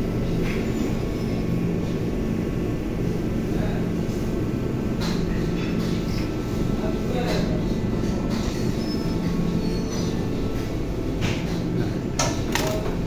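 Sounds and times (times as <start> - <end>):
kitchen ventilation machinery humming: 0.0 - 13.0.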